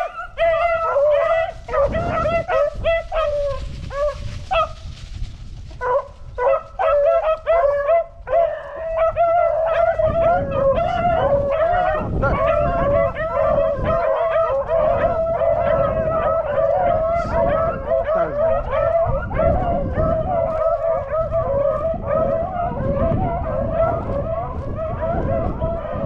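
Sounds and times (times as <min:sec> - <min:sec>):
pack of dogs baying: 0:00.0 - 0:05.0, 0:05.7 - 0:26.0.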